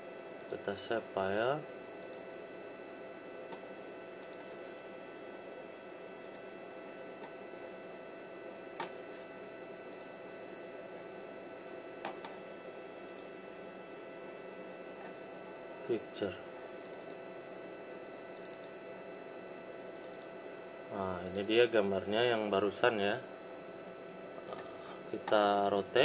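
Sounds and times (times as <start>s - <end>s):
electrical hum: 0.0s - 26.0s
computer mouse clicks: 2.0s - 2.2s, 4.2s - 4.4s, 6.2s - 6.5s, 8.8s - 9.0s, 9.9s - 10.1s, 13.0s - 13.3s, 16.8s - 17.2s, 18.3s - 18.8s, 19.9s - 20.3s, 21.2s - 21.6s.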